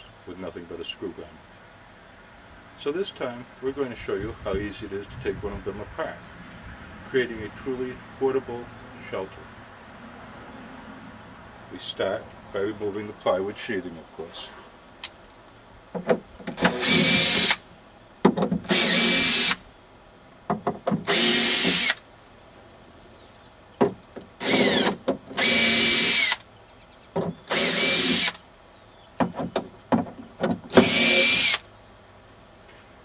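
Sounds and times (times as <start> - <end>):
cordless screw gun spurts: 24.4 - 26.4, 27.5 - 28.4, 30.7 - 31.6.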